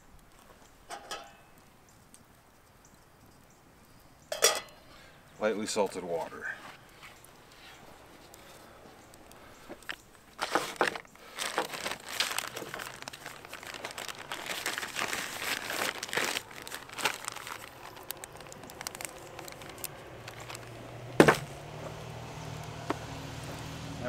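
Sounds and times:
plastic packaging crinkling: 9.7s - 21.5s.

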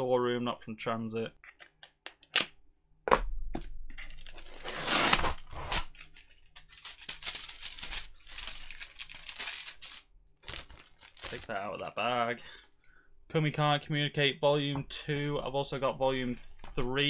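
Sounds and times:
cardboard being torn open: 4.3s - 6.2s.

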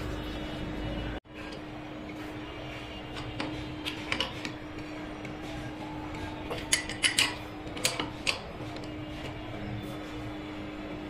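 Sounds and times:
steady hum: 0.0s - 11.0s
wrench clinking on metal: 6.5s - 8.4s.

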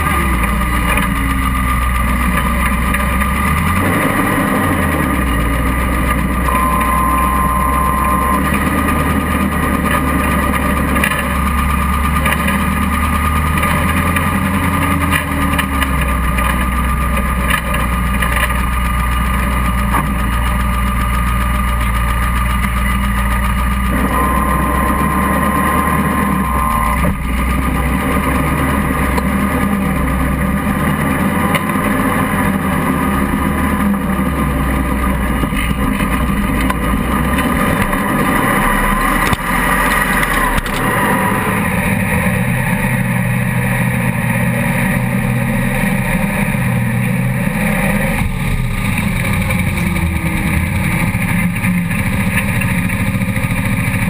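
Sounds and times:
buggy engine running: 0.0s - 54.0s
thin high whine: 6.4s - 9.6s, 23.9s - 27.1s.

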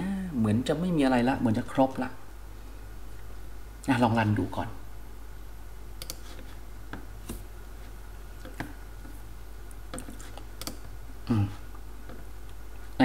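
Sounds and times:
computer mouse clicks: 6.0s - 6.4s, 9.8s - 10.9s.

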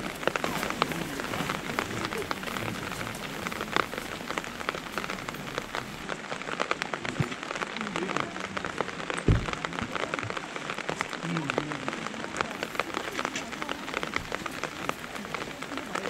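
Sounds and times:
rain falling: 0.0s - 16.0s
dull low thump: 9.3s - 9.7s.

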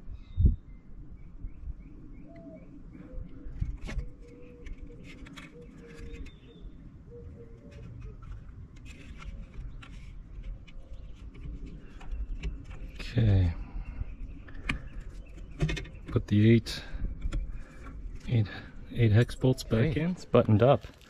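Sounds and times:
bird cooing: 2.1s - 8.5s.

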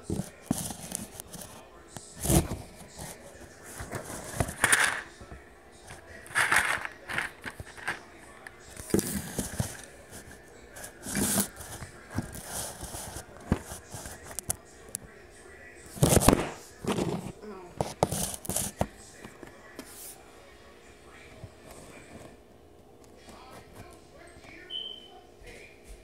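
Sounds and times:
phone rubbing against cans: 0.0s - 5.2s, 5.9s - 14.5s, 16.0s - 18.9s.

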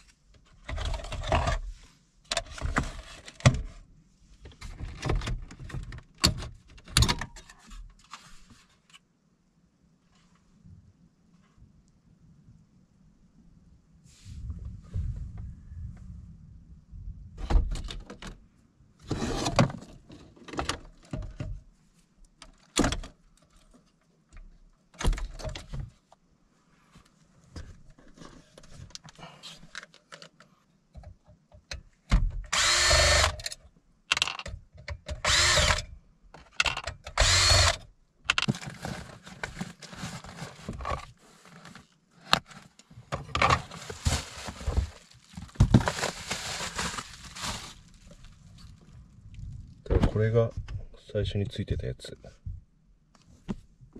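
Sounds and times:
cordless drill whine: 32.5s - 33.4s, 35.2s - 35.8s, 37.2s - 37.8s
cardboard and plastic rustling: 38.3s - 50.3s.

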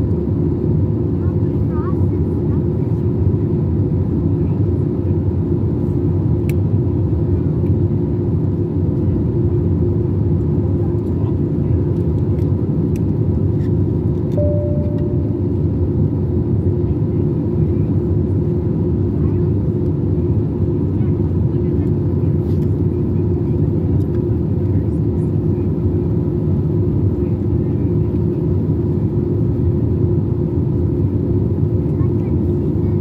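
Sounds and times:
jet engine and airflow drone: 0.0s - 33.0s
faint hum: 14.3s - 17.9s
short tone: 14.4s - 15.6s.

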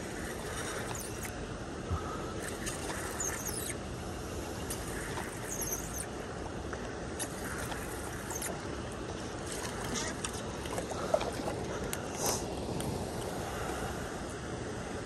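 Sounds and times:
river flowing: 0.0s - 15.0s
brief high squeaks: 2.5s - 3.8s, 4.8s - 6.1s, 8.2s - 8.6s.

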